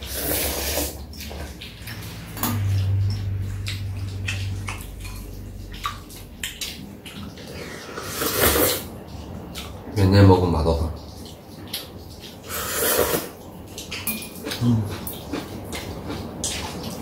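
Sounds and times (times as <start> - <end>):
noodles being slurped: 0.0 - 2.4, 3.8 - 9.0, 12.4 - 13.4.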